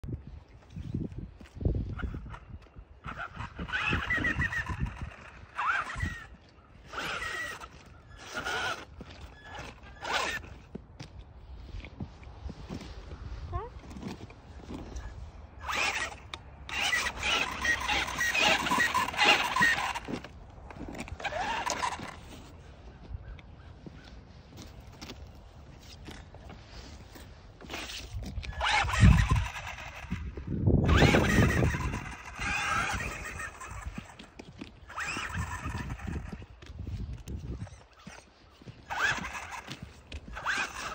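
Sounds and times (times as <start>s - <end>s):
electric motor whining: 1.8s - 10.8s, 14.0s - 22.4s, 27.6s - 40.9s.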